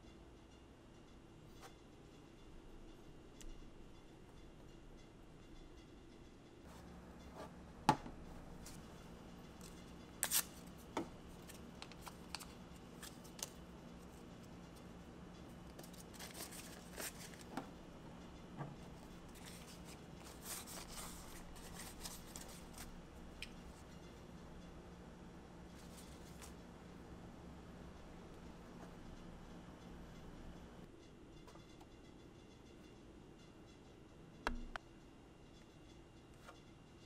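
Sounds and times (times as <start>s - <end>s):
faint steady hum: 0.0s - 37.0s
soft packaging rustling: 15.8s - 17.5s, 19.3s - 22.9s.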